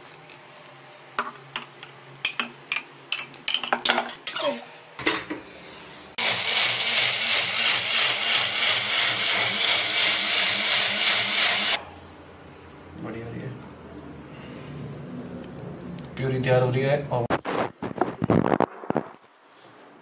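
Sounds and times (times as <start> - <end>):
blender motor grinding: 6.2 - 11.8.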